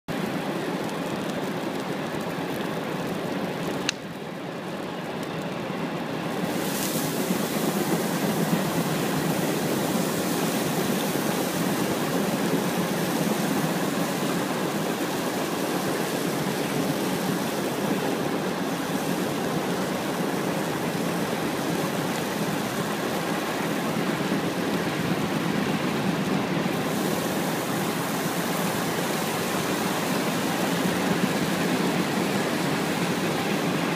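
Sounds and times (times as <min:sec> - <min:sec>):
bonfire flames rushing: 0:00.1 - 0:33.9.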